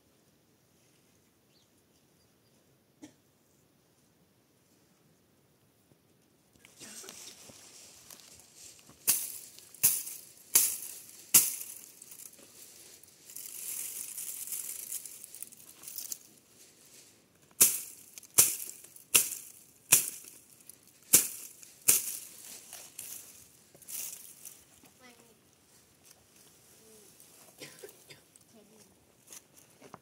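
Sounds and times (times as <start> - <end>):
soft hissing rustle: 6.6 - 29.9
sharp crisp hits: 9.0 - 12.4, 17.6 - 23.2.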